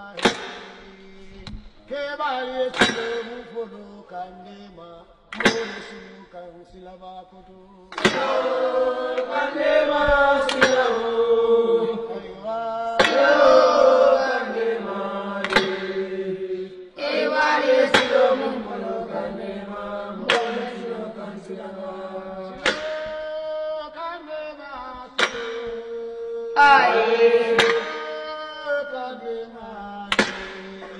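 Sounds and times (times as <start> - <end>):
sharp strikes: 0.2 - 1.9, 2.7 - 3.9, 5.3 - 6.4, 7.9 - 12.2, 13.0 - 21.8, 22.4 - 23.7, 25.1 - 28.6, 30.1 - 30.9
voices chanting: 7.8 - 30.9.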